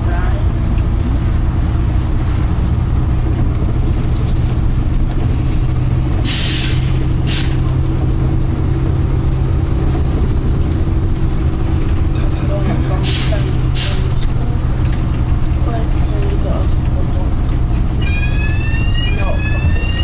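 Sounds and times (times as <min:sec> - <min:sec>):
bus engine hum: 0:00.0 - 0:20.0
air hissing: 0:06.2 - 0:07.6.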